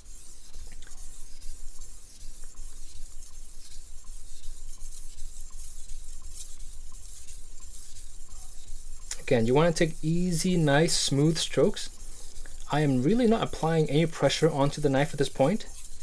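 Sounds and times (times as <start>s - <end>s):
knife scraping on whetstone: 0.0s - 16.0s.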